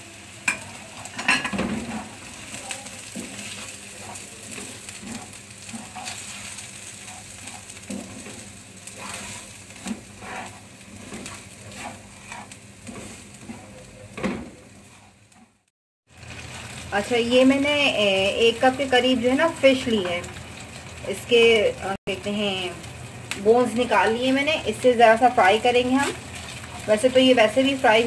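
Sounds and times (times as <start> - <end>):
vegetables sizzling in hot oil: 0.0 - 28.0
spatula scraping and knocking pan: 0.5 - 15.6.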